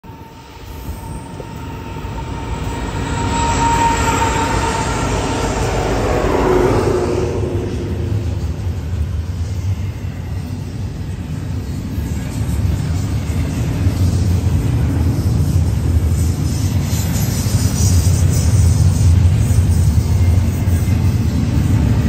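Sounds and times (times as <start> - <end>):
diesel locomotive whine: 0.0 - 22.0
container cars rumbling past: 0.1 - 9.6.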